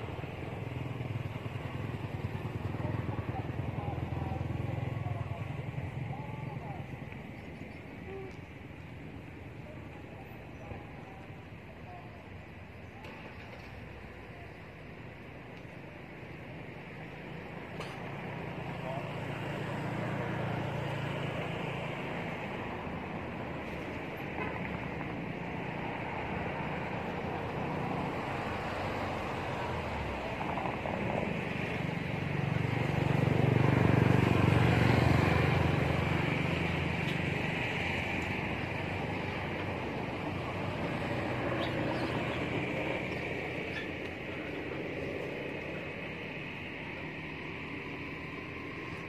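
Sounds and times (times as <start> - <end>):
road traffic noise: 0.0 - 49.0
motor vehicle passing: 18.0 - 49.0.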